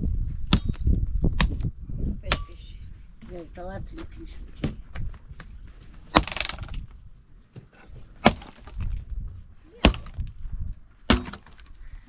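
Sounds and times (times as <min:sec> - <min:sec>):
wood cracking: 0:04.6 - 0:10.4, 0:11.0 - 0:12.0
mattock chopping tree branch: 0:08.2 - 0:08.8, 0:09.8 - 0:10.3, 0:11.1 - 0:11.6.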